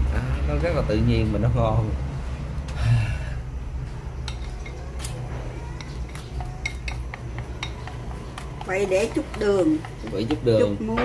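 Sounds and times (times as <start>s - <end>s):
chopsticks clinking in ceramic bowl: 5.8s - 8.7s.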